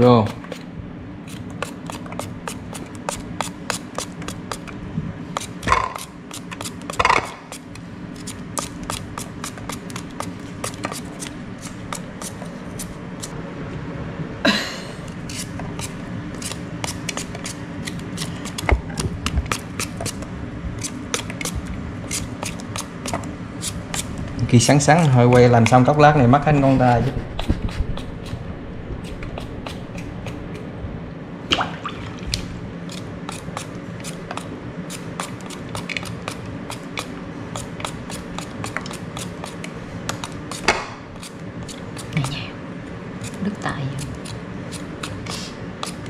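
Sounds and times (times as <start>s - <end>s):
low steady hum: 0.0s - 46.0s
knife slicing crisp fruit: 1.3s - 13.3s, 15.3s - 24.1s, 29.0s - 30.7s, 32.9s - 42.3s, 44.0s - 46.0s.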